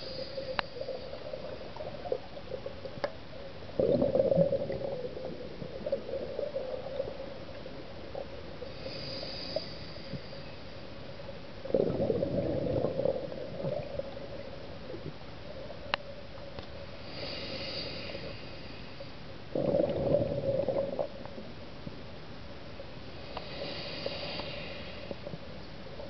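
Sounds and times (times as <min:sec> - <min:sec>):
regulator inhalation hiss: 0:00.0 - 0:01.2, 0:08.7 - 0:10.7, 0:17.0 - 0:19.1, 0:23.2 - 0:25.3
exhaled bubbles burbling underwater: 0:00.0 - 0:08.8, 0:11.6 - 0:15.2, 0:19.5 - 0:21.4
steady hum: 0:00.0 - 0:26.0.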